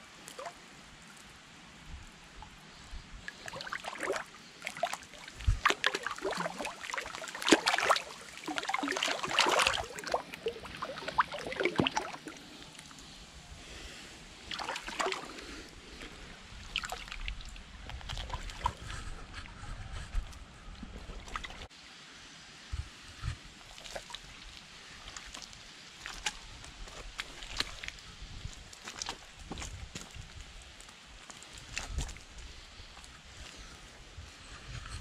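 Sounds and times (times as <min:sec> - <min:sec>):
thick mud sloshing and splashing: 0:03.3 - 0:12.8, 0:14.4 - 0:20.0, 0:20.8 - 0:21.7, 0:23.6 - 0:30.2.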